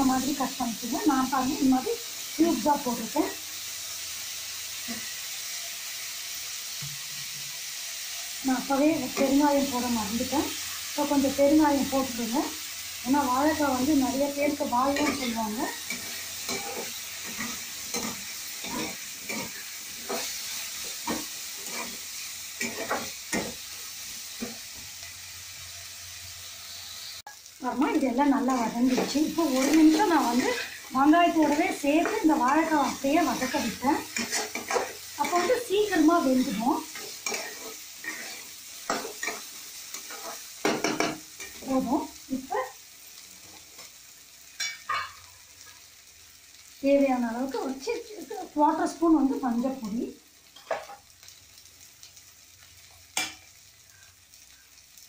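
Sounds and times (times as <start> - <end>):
oil frying sizzle: 0.0 - 55.0
metal spatula scraping: 14.8 - 23.6, 27.8 - 41.6.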